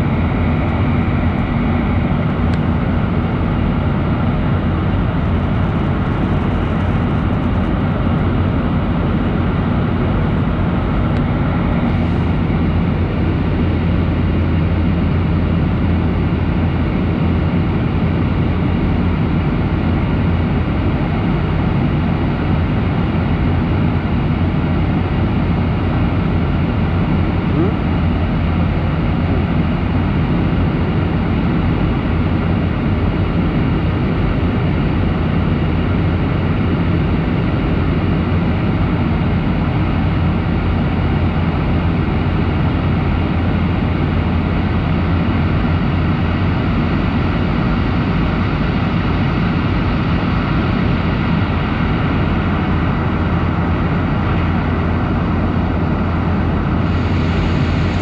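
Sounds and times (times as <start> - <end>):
airplane cabin engine drone: 0.0 - 58.0
rushing airflow: 51.1 - 58.0.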